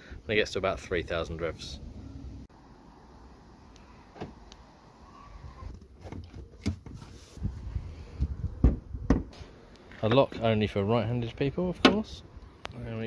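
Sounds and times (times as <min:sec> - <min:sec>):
car door clunks: 0:08.6 - 0:09.4.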